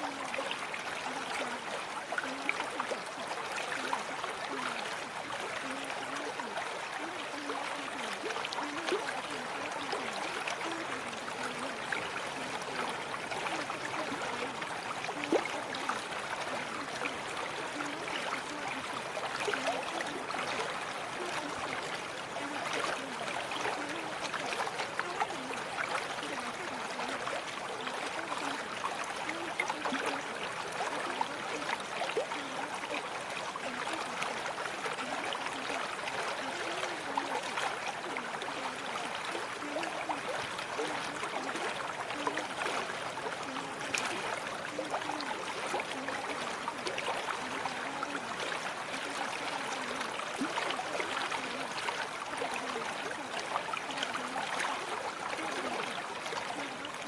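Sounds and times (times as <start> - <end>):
stream trickling and gurgling: 0.0 - 57.0.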